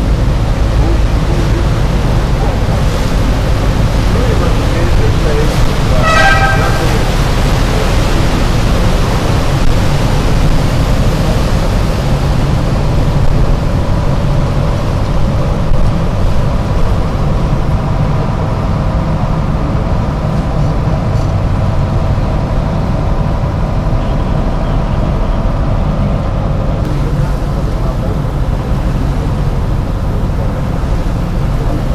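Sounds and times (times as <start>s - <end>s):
boat engine drone: 0.0s - 31.9s.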